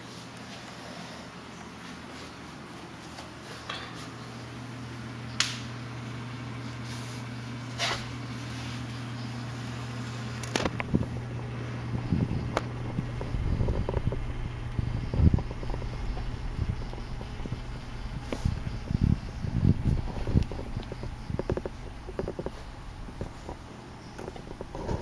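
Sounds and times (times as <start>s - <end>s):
filter motor hum: 4.2s - 25.0s
sharp clicks and knocks: 20.2s - 25.0s.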